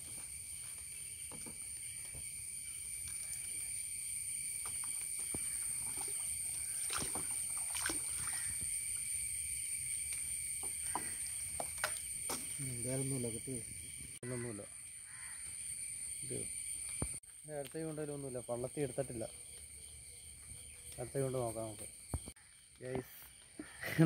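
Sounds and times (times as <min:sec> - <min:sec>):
high insect buzz: 0:00.0 - 0:24.0
water sloshing and splashing: 0:04.6 - 0:09.2, 0:10.0 - 0:12.6.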